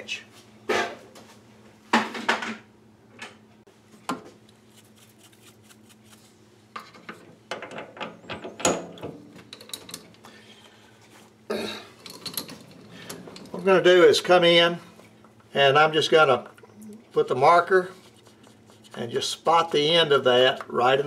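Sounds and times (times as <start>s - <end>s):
faint steady hum: 0.0s - 21.0s
metal tools clanking: 12.0s - 13.9s.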